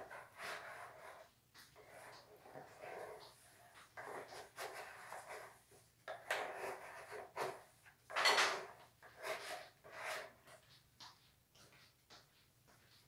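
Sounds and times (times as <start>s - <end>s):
scraper scraping clay in plastic basin: 0.0s - 7.8s, 8.5s - 10.6s.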